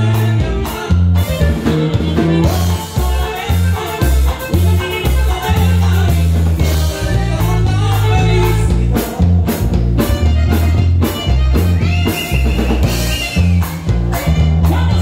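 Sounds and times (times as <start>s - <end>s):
bass line: 0.0s - 15.0s
drum beats: 0.0s - 15.0s
live band playing dance music: 0.0s - 15.0s.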